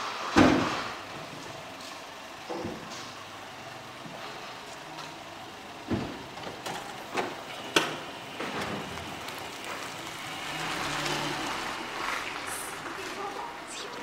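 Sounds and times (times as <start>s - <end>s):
small car driving past: 8.8s - 14.0s.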